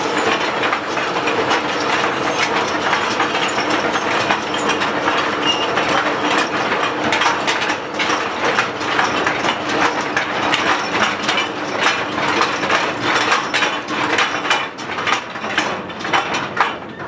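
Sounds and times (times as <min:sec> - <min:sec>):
steady machine hum: 0:00.0 - 0:07.0
clatter of knocks and rattles: 0:00.0 - 0:17.0.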